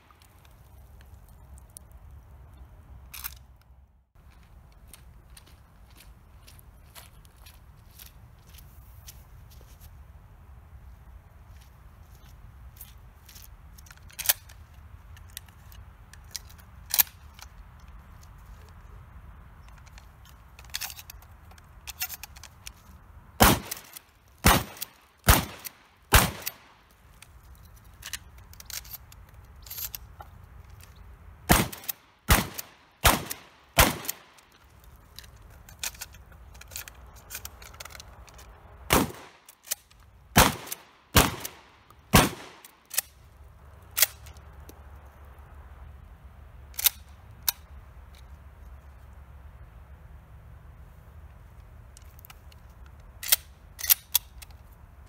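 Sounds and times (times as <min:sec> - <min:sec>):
shells loading clicks and clatter: 0:03.0 - 0:03.7, 0:12.2 - 0:18.9, 0:19.5 - 0:44.8, 0:46.7 - 0:49.0, 0:51.6 - 0:55.0
shotgun shots: 0:23.4 - 0:26.7, 0:31.5 - 0:34.3, 0:38.9 - 0:39.4, 0:40.4 - 0:42.7.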